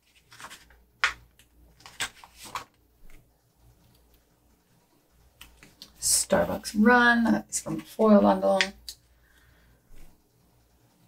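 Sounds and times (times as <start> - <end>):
paper stickers ticking and rustling: 0.0 - 4.4.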